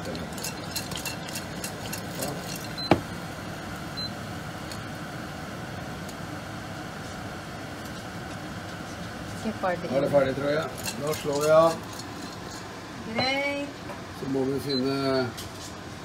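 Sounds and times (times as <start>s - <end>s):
popcorn popping: 0.0s - 3.2s.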